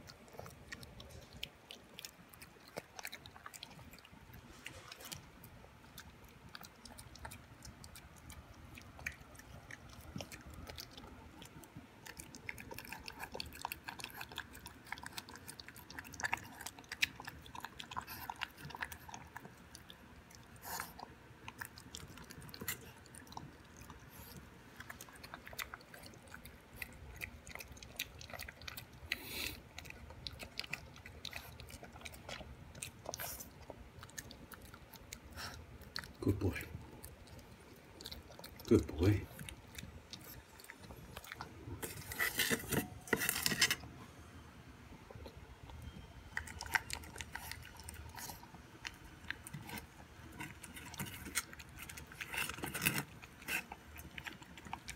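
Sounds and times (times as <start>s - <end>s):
dog chewing and licking: 0.0s - 43.8s, 45.0s - 54.9s.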